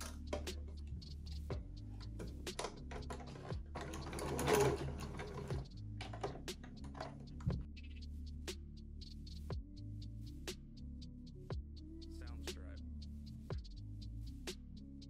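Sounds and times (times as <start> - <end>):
sewing machine clicks: 2.6 - 7.1
sewing machine motor running: 3.1 - 6.3.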